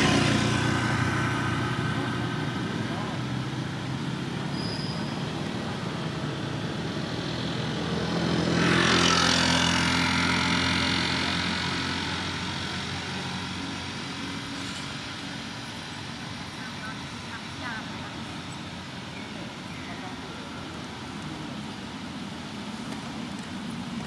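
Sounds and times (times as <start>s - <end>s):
steady engine hum: 0.0s - 24.0s
vehicle passing by: 0.0s - 24.0s.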